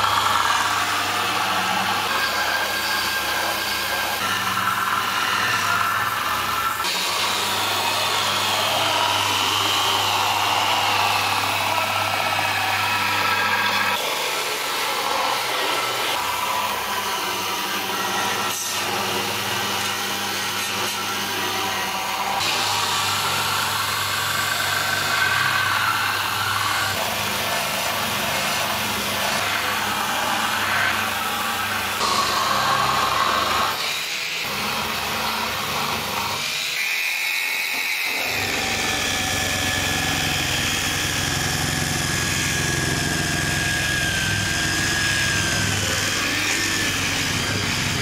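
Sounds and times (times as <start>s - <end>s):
electric polisher whining: 0.0s - 48.0s.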